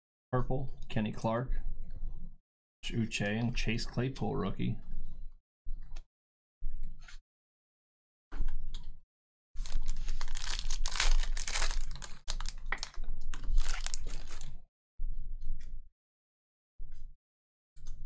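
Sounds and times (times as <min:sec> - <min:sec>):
foil wrapper crinkling and tearing: 0:09.6 - 0:14.6.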